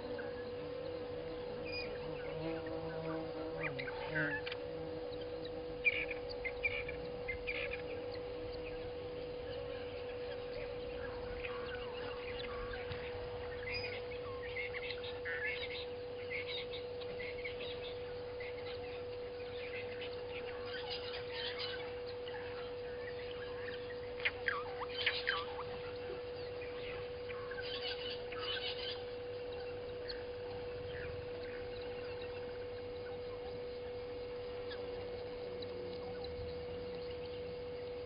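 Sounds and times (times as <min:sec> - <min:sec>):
steady hum: 0:00.0 - 0:38.0
wild birds chirping: 0:00.0 - 0:38.0.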